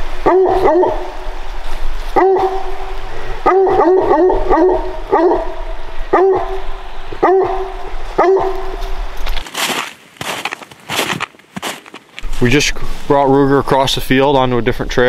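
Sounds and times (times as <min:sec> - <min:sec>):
hound barking: 0:00.2 - 0:01.3, 0:02.1 - 0:09.0.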